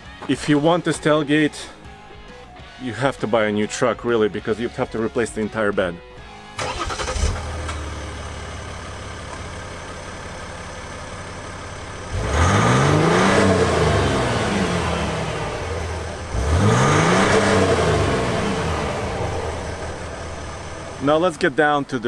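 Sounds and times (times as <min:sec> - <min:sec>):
diesel engine idling and revving: 0:06.0 - 0:22.0.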